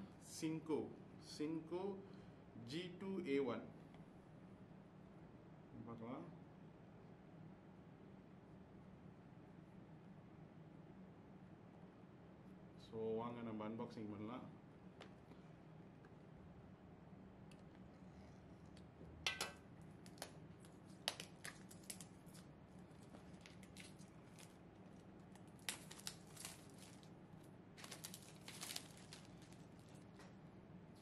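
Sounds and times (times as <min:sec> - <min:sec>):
plastic wrap tearing and crinkling: 0:20.0 - 0:30.3.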